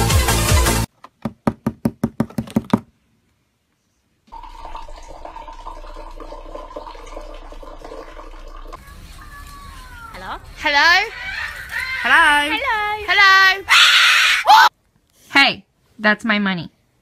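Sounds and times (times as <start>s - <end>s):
knocks on cardboard box: 1.2s - 2.9s
water pouring into glass: 4.3s - 8.8s.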